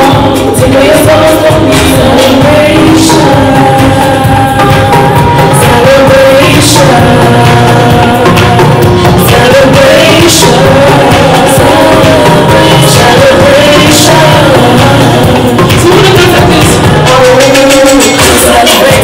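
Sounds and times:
amplified backing music: 0.0s - 19.0s
woman singing into microphone: 0.0s - 19.0s.

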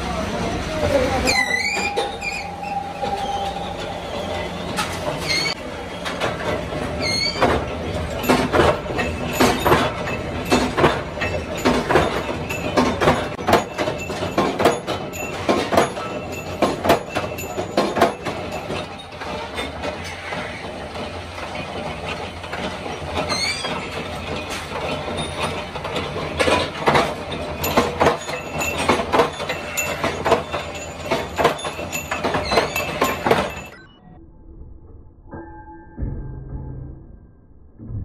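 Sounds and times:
machine running noise: 0.0s - 35.2s
power press clanking metal: 4.8s - 33.8s.

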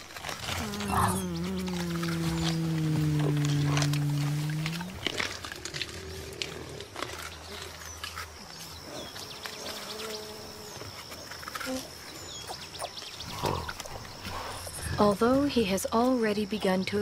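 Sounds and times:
stems and leaves crackling: 0.0s - 12.3s
gorilla hum-like call: 0.4s - 5.3s
gorilla grunting softly: 0.5s - 5.2s.

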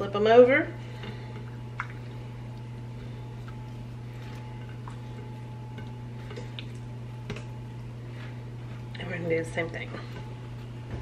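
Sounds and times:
steady low hum: 0.0s - 11.0s
soft clicks and wet slaps: 1.4s - 2.8s.

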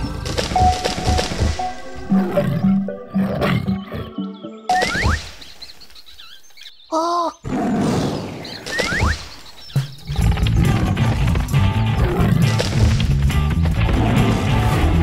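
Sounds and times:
children's cartoon music: 0.0s - 5.3s.

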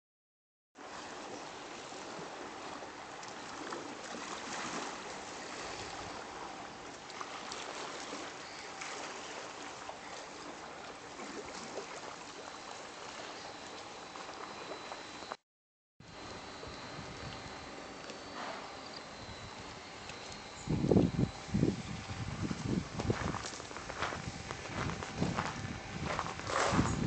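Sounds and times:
small waves lapping: 0.8s - 15.3s.

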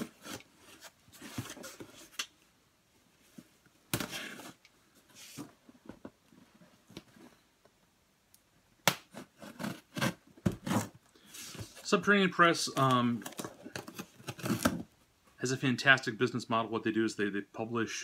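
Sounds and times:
knife slitting cardboard: 9.1s - 10.9s.

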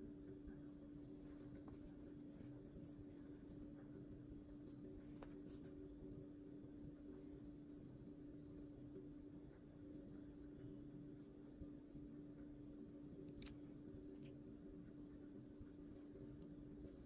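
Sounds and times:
faint scratching: 1.1s - 5.9s.

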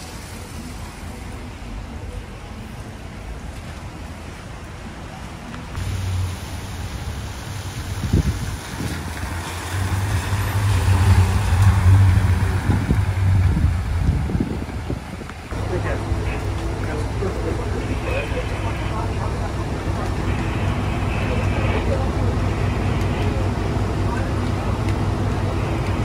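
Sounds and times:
tyres hissing on wet pavement: 0.0s - 2.1s, 5.7s - 26.0s
vehicle engine running: 15.5s - 26.0s.

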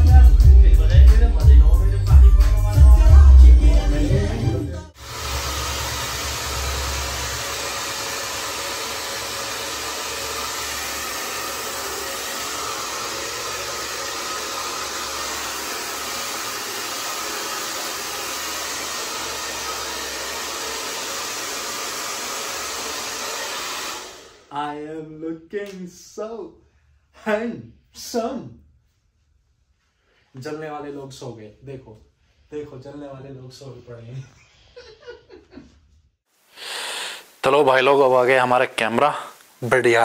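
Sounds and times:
hair dryer running: 4.9s - 24.5s.

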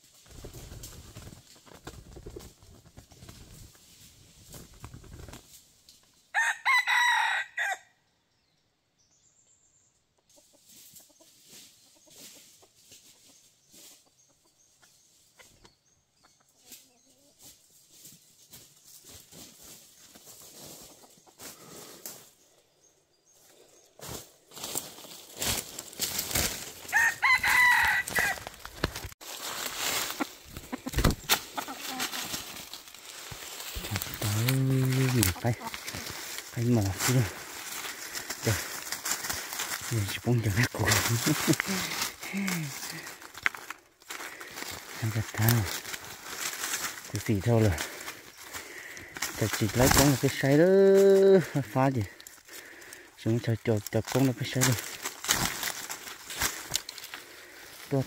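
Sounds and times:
dry leaves and twigs crackling: 0.0s - 7.8s, 10.4s - 15.9s, 16.5s - 58.0s
rooster crowing: 6.3s - 8.0s, 26.9s - 28.5s.

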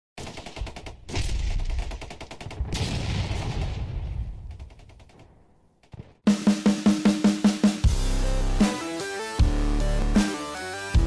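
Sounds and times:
rapid machine-gun fire: 0.2s - 4.5s
deep rumbling blast: 2.7s - 4.6s
drum beat: 6.3s - 8.0s.

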